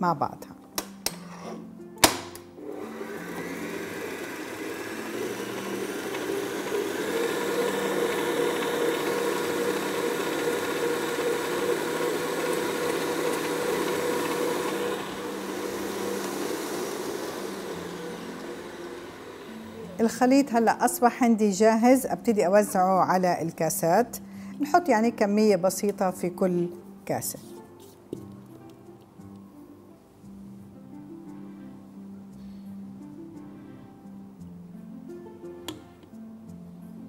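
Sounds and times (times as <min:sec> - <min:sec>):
stand mixer motor whine: 0:02.6 - 0:20.4.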